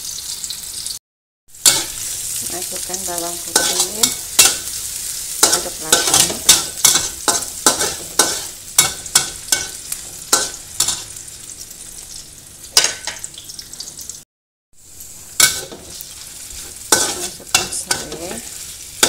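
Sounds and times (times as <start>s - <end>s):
shallots sizzling in hot oil: 0.0s - 14.2s, 14.8s - 19.0s
metal spatula scraping a wok: 1.6s - 2.4s, 3.4s - 11.2s, 15.2s - 19.0s.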